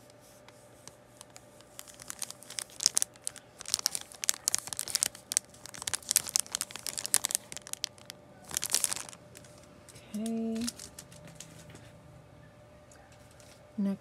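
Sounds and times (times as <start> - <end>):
plastic packaging crinkling: 0.8 - 11.7.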